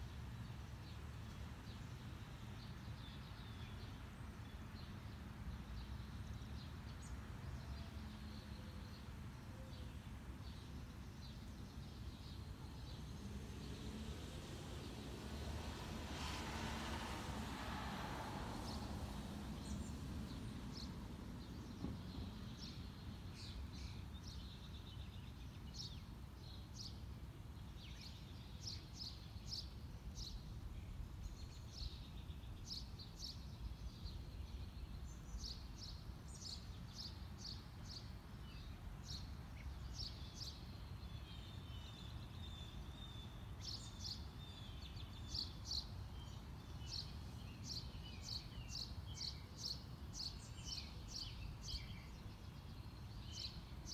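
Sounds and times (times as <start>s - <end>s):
small birds chirping: 18.6s - 53.9s.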